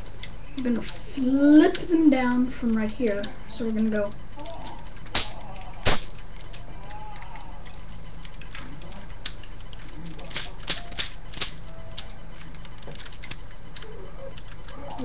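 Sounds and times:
plastic toy parts clicking: 4.0 - 15.0.

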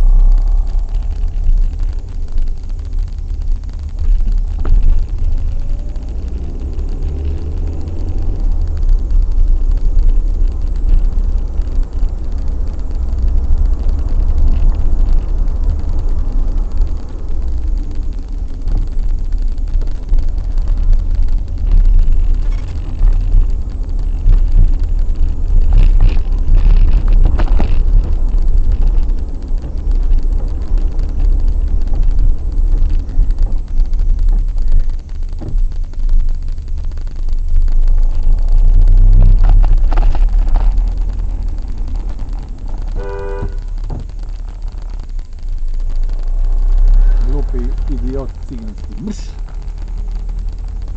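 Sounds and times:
car engine and road noise: 0.0 - 50.9.

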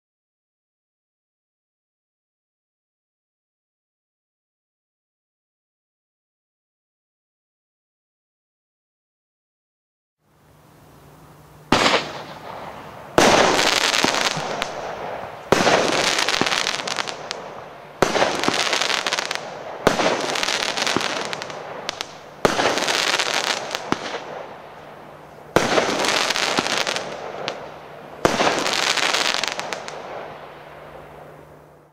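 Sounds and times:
dense firework crackling: 11.4 - 31.9
firework shot reports: 11.7 - 24.8, 25.5 - 31.4.

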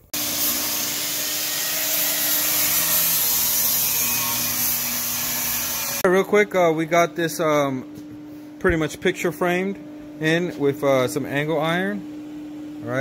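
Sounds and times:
angle grinder cutting steel: 0.1 - 6.0.

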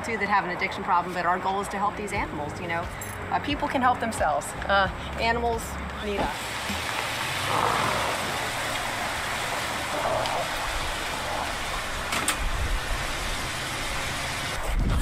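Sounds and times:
even hiss: 6.2 - 14.6.

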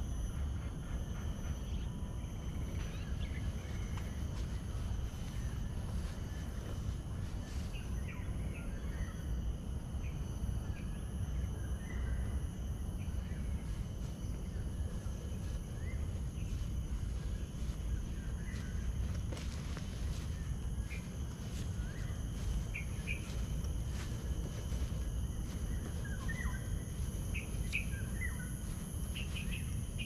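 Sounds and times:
insect chorus: 0.0 - 30.0
steady low rumble: 0.0 - 30.0.

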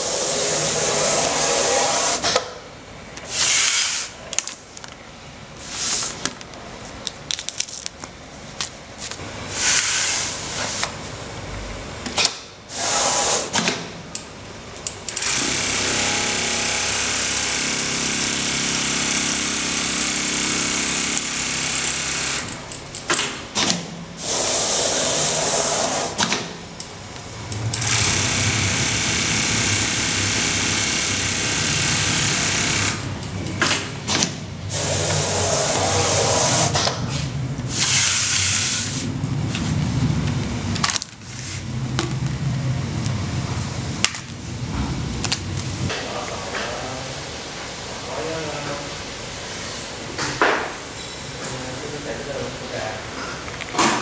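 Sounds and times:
sewing machine running: 15.1 - 22.7, 27.6 - 33.1.

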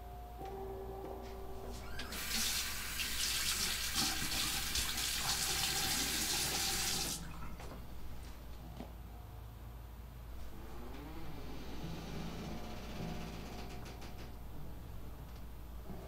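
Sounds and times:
water running into sink: 1.8 - 7.5.

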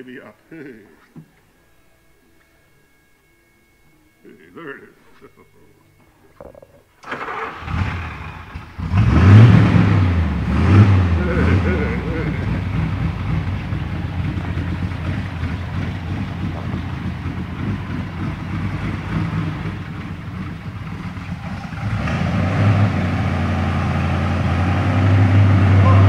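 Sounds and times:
car engine idling: 6.4 - 26.0.

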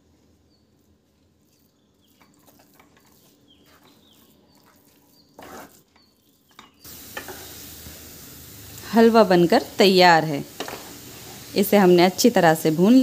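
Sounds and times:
wooden spatula scraping a pan: 2.1 - 7.7, 10.4 - 11.6
sizzle of frying in a pan: 4.5 - 13.0.

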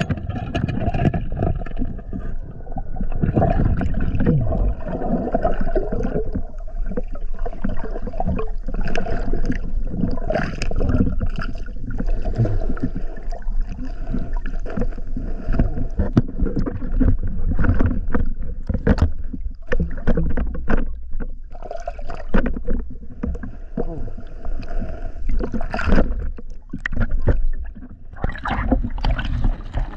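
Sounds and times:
muffled underwater sloshing: 0.0 - 29.9
sharp clicks and knocks: 16.0 - 21.4.

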